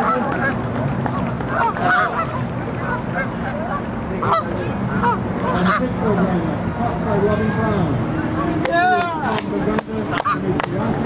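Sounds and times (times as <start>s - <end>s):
geese honking: 0.0s - 6.4s, 10.1s - 10.5s
steady low hum: 0.0s - 11.0s.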